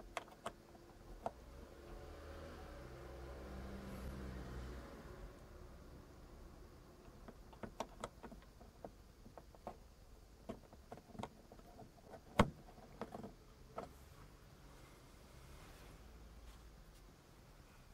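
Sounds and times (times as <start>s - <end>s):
small plastic clicks and taps: 7.1s - 9.8s.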